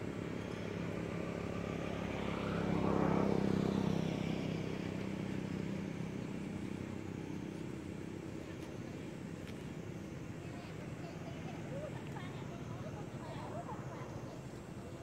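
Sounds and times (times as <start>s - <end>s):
vehicle engine passing by: 0.0s - 7.4s
low engine hum: 0.0s - 15.0s.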